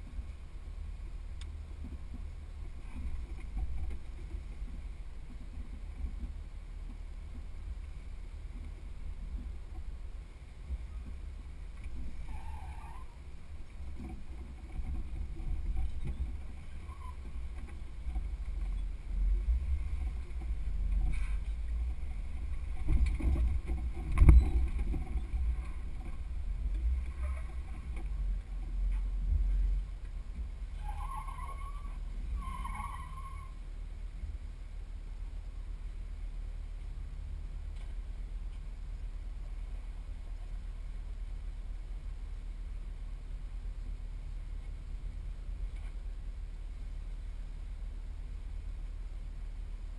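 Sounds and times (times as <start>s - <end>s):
wind buffeting microphone: 0.0s - 33.5s
engine and drivetrain rumble: 0.0s - 49.9s.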